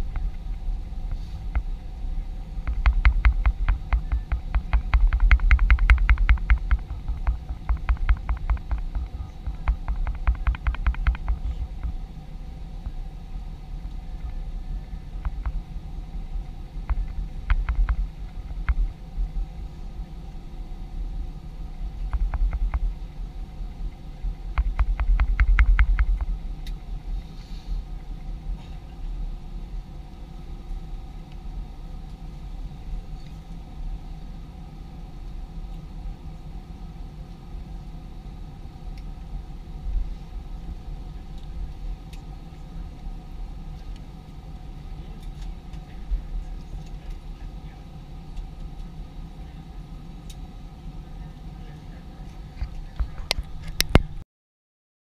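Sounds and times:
airliner engine hum in cabin: 0.0s - 54.2s
rapid knocking and rattling: 2.6s - 12.0s, 16.8s - 19.0s, 22.0s - 23.0s, 24.5s - 26.3s.

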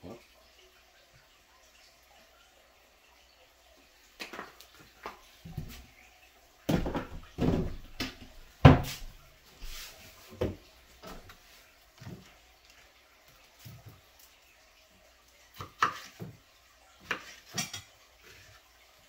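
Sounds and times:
kitchen items knocking and clunking: 6.6s - 9.2s.

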